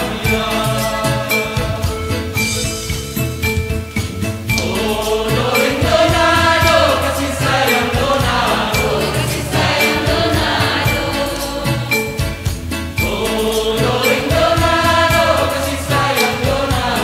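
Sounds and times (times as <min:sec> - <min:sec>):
mixed choir singing: 0:00.0 - 0:02.6, 0:04.5 - 0:17.0
instrumental accompaniment with beat: 0:00.0 - 0:17.0.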